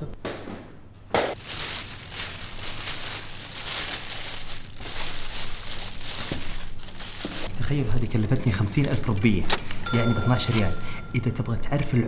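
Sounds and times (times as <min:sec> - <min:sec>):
plastic bag rustling: 0:01.4 - 0:11.0.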